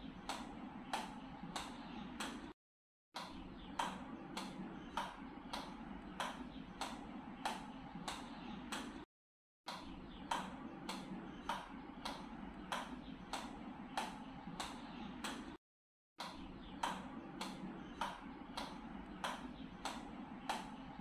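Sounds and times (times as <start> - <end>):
ball tapping on paddle: 0.2 - 2.5.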